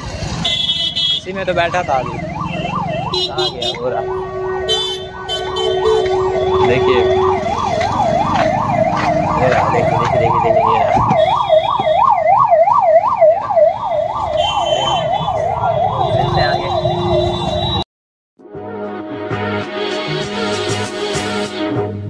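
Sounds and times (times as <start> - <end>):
low traffic rumble: 0.0 - 17.8
electronic siren warbling: 1.5 - 17.8
music: 18.4 - 22.0.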